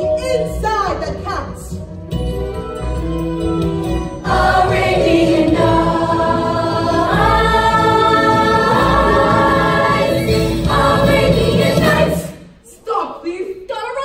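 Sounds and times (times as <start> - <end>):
backing music: 0.0 - 12.6
children's chorus singing: 4.2 - 12.5.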